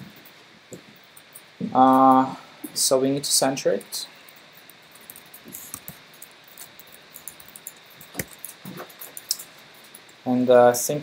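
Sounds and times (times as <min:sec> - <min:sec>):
room hiss: 0:00.0 - 0:11.0
laptop keyboard typing: 0:04.2 - 0:10.2.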